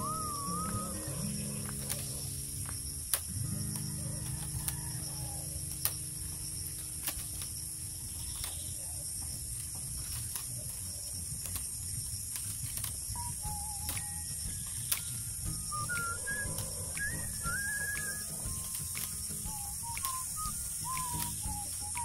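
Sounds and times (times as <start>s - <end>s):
bamboo strips clicking and rustling: 0.0s - 22.0s
steady high hiss: 0.0s - 22.0s.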